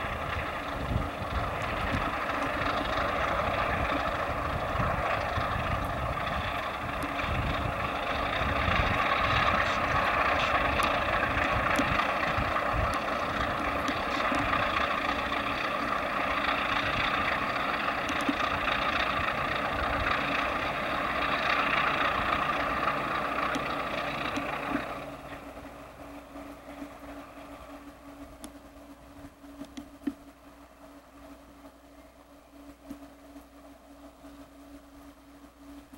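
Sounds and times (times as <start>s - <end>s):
diesel locomotives roaring past: 0.0s - 29.7s.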